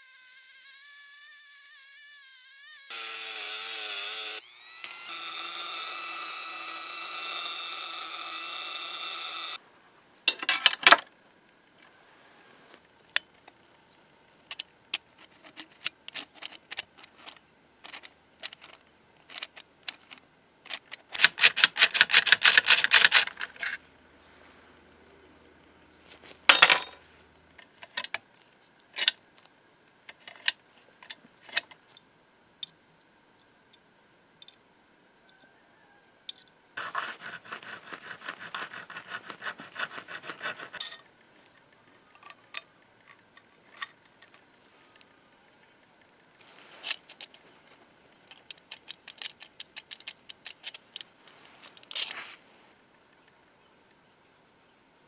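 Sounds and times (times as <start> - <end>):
metal filing strokes: 36.8 - 41.0.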